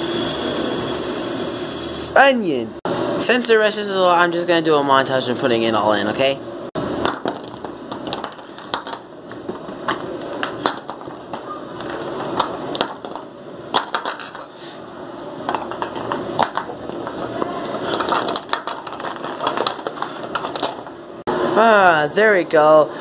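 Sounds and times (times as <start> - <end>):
plastic toys clattering: 7.1 - 14.6, 15.5 - 20.9
rustling handling noise: 15.5 - 21.0.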